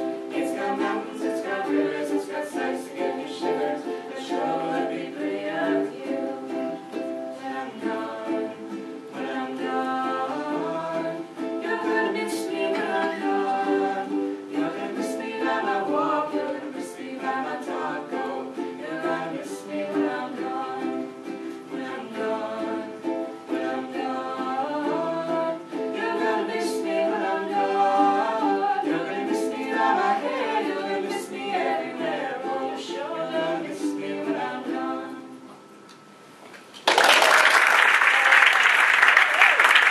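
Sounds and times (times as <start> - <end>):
voices singing in harmony: 0.0 - 35.7
strummed ukuleles: 0.0 - 36.0
applause: 36.7 - 39.9.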